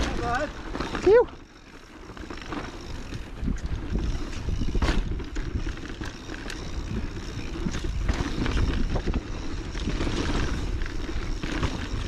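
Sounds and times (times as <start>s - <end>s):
bike rattling over rocks: 0.0s - 12.0s
bike tyres rumbling on trail: 0.0s - 12.0s
wind buffeting microphone: 2.8s - 12.0s.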